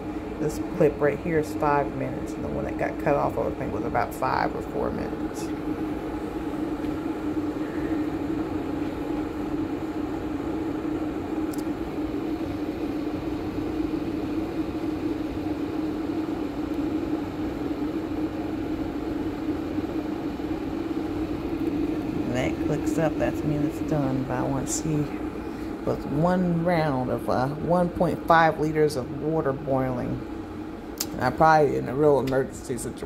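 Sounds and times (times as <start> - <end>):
electric kettle boiling: 0.0 - 33.0.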